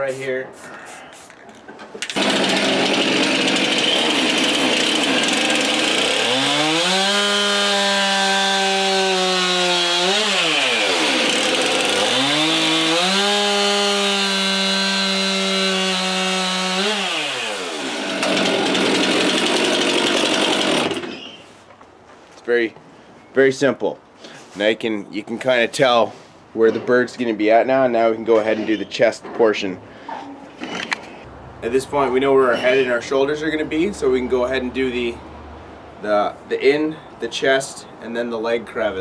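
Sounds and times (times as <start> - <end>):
chainsaw cutting wood: 2.0 - 21.4.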